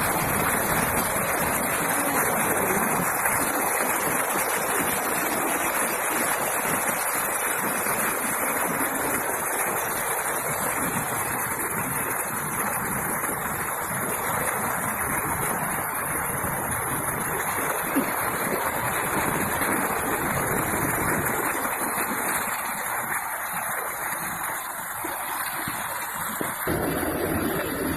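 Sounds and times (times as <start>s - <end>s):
floodwater rushing: 0.0s - 27.9s
heavy rain falling: 0.0s - 27.9s.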